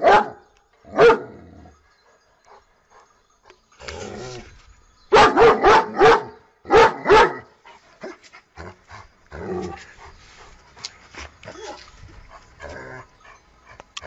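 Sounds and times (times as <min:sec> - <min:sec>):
dog barking: 0:00.0 - 0:00.4, 0:01.0 - 0:01.3, 0:05.1 - 0:07.5.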